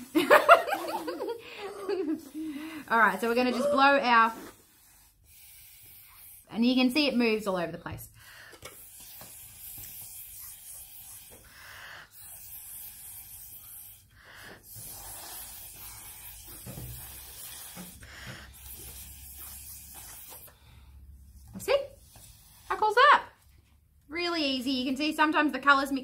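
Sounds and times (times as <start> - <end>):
breath blown through straws: 0.8 - 6.6, 8.2 - 21.3.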